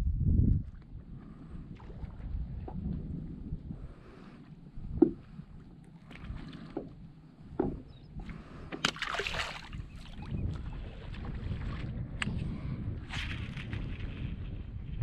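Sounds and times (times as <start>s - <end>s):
fish splashing into water: 8.8s - 9.9s.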